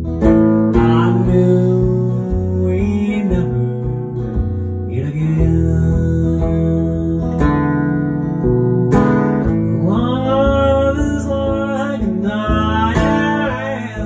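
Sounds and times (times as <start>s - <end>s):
acoustic guitar strummed: 0.0s - 14.0s
man singing: 0.4s - 8.1s, 9.4s - 14.0s.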